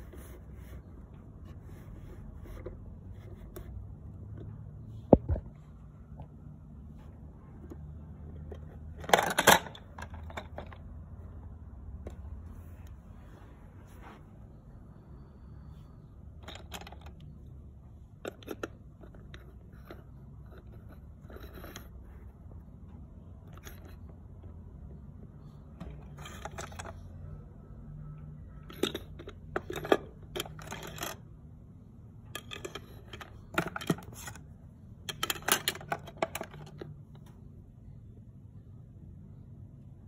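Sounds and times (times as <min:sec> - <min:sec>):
plastic toy pieces clattering: 0:08.9 - 0:10.8, 0:26.0 - 0:27.1, 0:28.7 - 0:31.2, 0:32.4 - 0:34.4, 0:35.1 - 0:36.9.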